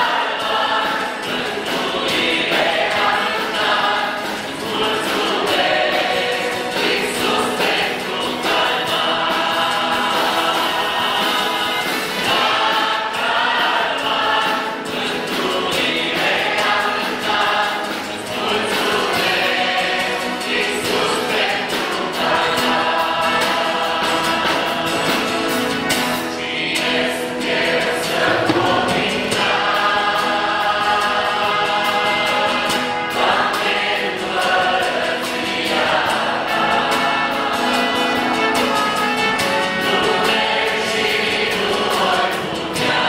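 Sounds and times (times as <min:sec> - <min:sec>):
choir singing worship song: 0:00.0 - 0:43.0
strummed guitar: 0:00.0 - 0:43.0.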